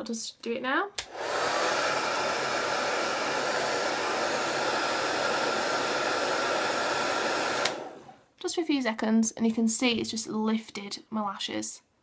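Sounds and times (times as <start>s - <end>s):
hair dryer running: 1.0s - 8.2s.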